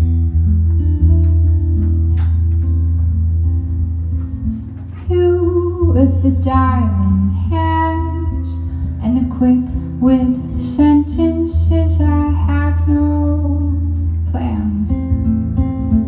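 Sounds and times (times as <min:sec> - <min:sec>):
guitar: 0:00.0 - 0:16.0
woman singing: 0:05.0 - 0:16.0.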